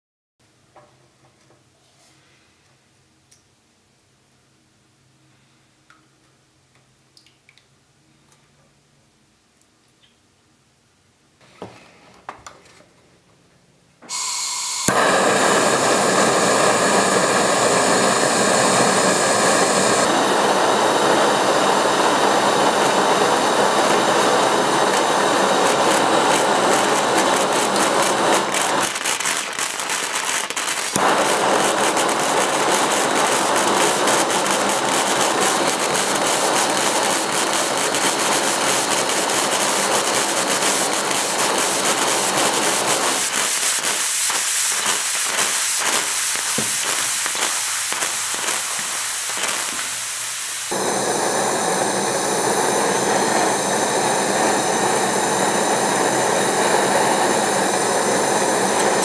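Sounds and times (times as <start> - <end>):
toy steam engine running: 21.1 - 50.0.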